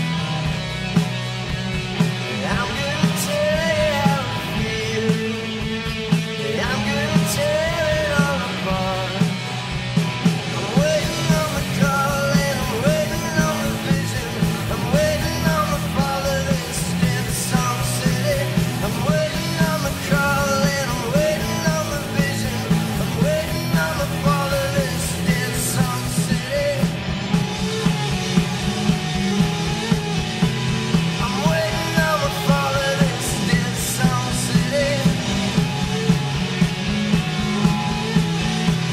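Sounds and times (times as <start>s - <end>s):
bass: 0.0s - 38.9s
drums: 0.0s - 38.9s
electric guitar: 0.0s - 38.9s
male voice singing: 2.3s - 9.4s, 10.6s - 27.0s, 31.2s - 36.2s.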